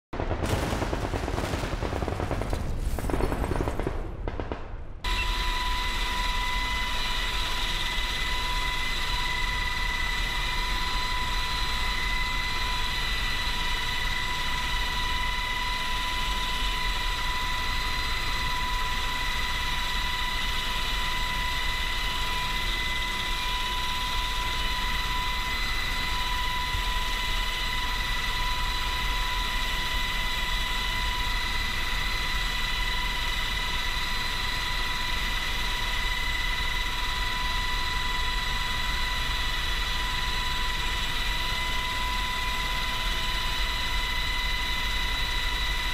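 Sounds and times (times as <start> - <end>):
gunfire sound effects: 0.2 - 5.1
helicopter cabin rumble and whine: 5.0 - 45.9.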